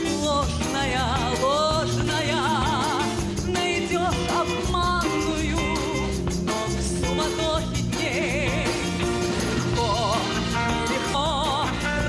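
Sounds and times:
woman singing with vibrato: 0.0 - 12.0
orchestra playing: 5.7 - 12.0.

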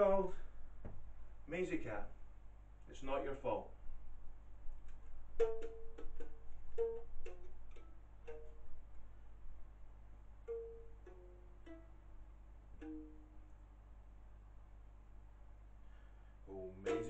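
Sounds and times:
ukulele plucked notes: 5.4 - 9.0, 10.4 - 13.7, 16.8 - 17.0.

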